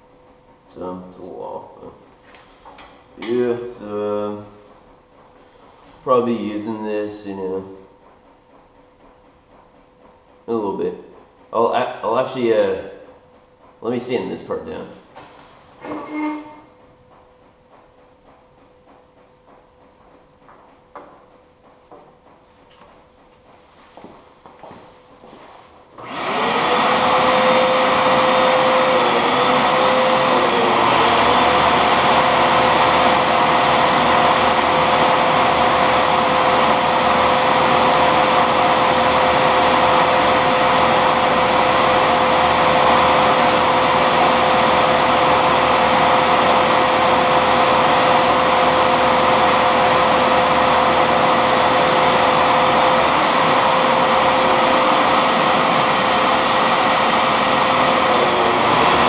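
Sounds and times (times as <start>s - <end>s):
lathe motor whine: 15.8s - 59.0s.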